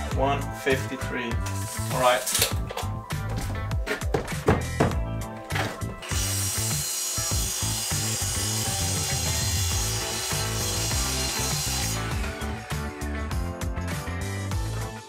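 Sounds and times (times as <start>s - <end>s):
background music: 0.0s - 15.0s
miter saw cutting wood: 6.0s - 13.0s.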